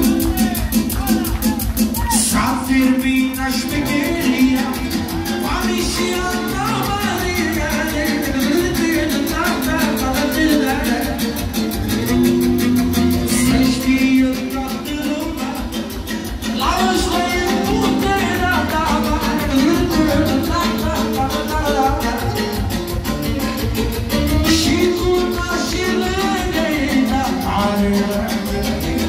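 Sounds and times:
man singing into a microphone: 0.0s - 11.8s, 13.2s - 23.0s, 24.3s - 29.0s
amplified band with fast beat: 0.0s - 29.0s.

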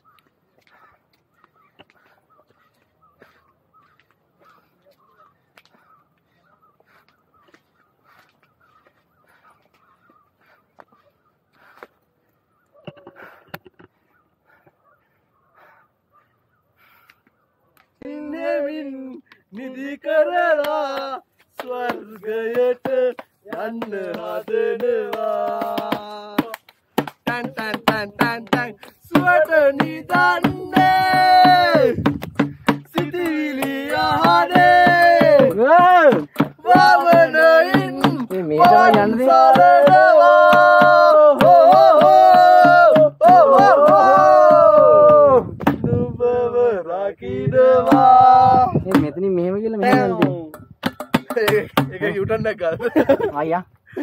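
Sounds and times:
person singing long held notes: 18.0s - 26.6s, 27.2s - 32.1s, 32.9s - 49.2s
steady percussion beat: 25.1s - 45.8s, 47.8s - 48.2s, 49.8s - 52.2s.

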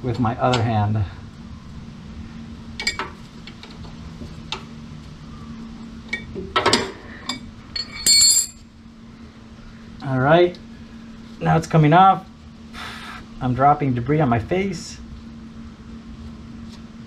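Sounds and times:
steady low hum: 0.0s - 17.0s
wrench clanging on concrete floor: 7.7s - 8.6s.

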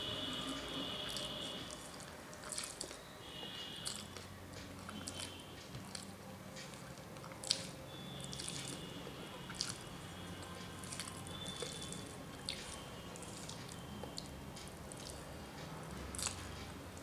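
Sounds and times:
person chewing food: 1.0s - 17.0s.

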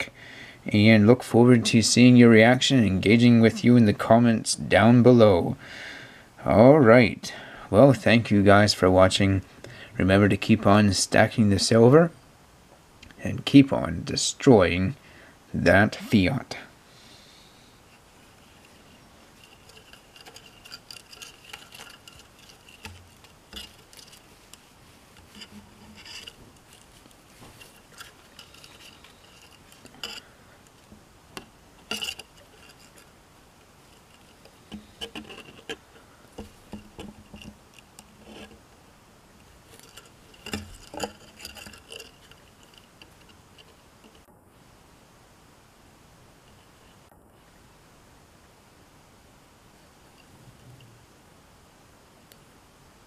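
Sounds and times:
cloth rustling: 18.0s - 38.6s
metal bar clicking and tapping: 31.4s - 33.1s, 39.7s - 44.2s.

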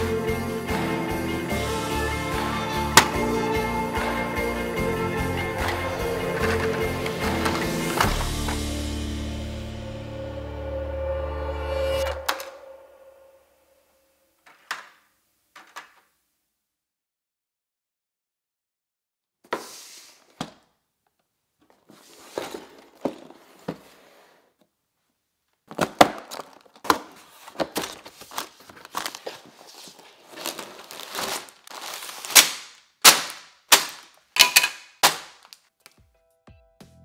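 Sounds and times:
plastic parts clacking: 5.6s - 8.6s, 14.4s - 16.1s, 25.6s - 36.0s
plastic bags crinkling: 25.6s - 35.7s
cardboard box tearing: 26.3s - 32.5s.

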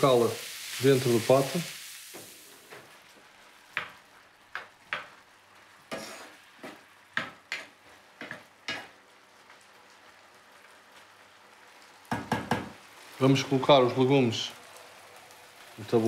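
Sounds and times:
vegetables sizzling in frying pan: 0.0s - 16.0s
spatula scraping pan: 5.9s - 6.8s.

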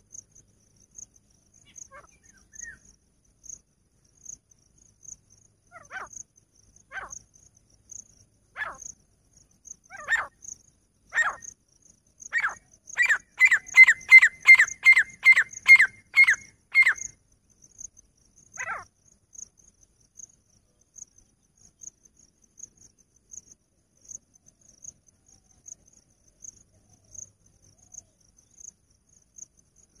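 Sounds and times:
faint insect chirping: 0.0s - 30.0s
francolin calling: 1.6s - 3.0s, 5.7s - 6.2s, 6.8s - 7.2s, 8.6s - 9.0s, 9.8s - 10.5s, 11.1s - 11.6s, 12.2s - 17.2s, 18.6s - 18.9s.

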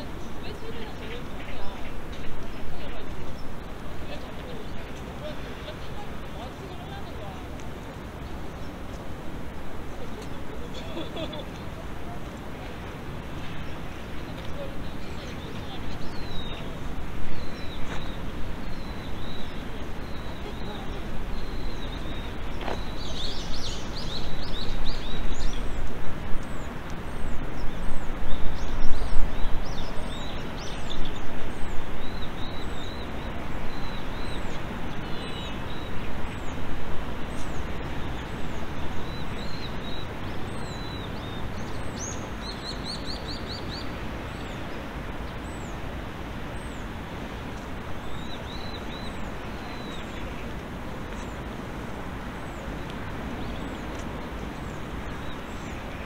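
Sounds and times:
rushing outdoor background: 0.0s - 56.0s
small birds chirping: 0.0s - 56.0s.

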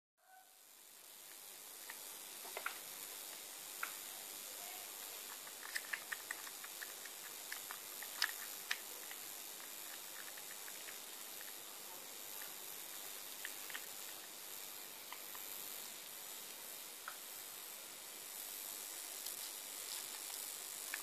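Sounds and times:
steady hiss: 0.2s - 21.0s
kitten suckling bottle: 5.2s - 11.6s, 13.3s - 14.3s.

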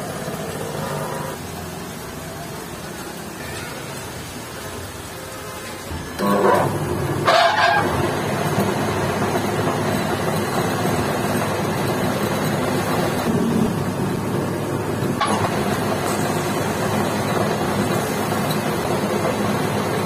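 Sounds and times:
lathe scraping bursts: 6.1s - 13.9s
metal lathe droning: 6.1s - 20.0s.

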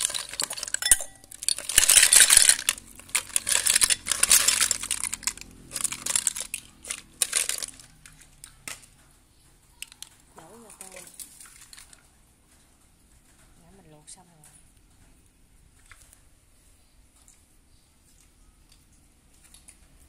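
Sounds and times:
snail shells clattering in bowl: 0.0s - 8.9s, 9.8s - 12.0s.

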